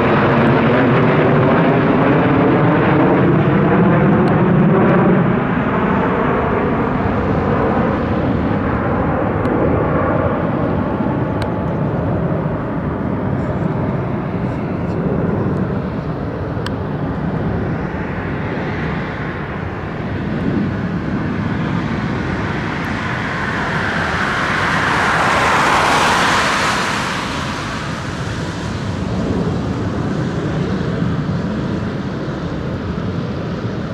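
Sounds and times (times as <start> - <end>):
jet fighter flying past: 0.0 - 33.9
turboprop aircraft droning: 0.0 - 33.9.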